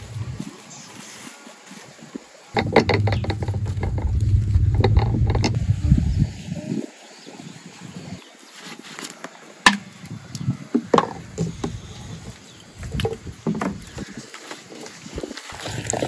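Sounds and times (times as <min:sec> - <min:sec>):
water pouring into a bowl: 0:15.5 - 0:16.0.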